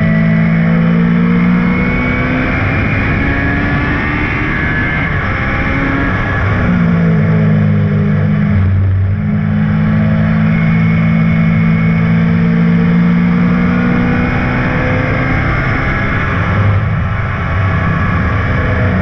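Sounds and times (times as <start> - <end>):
racing car engine running: 0.0 - 19.0.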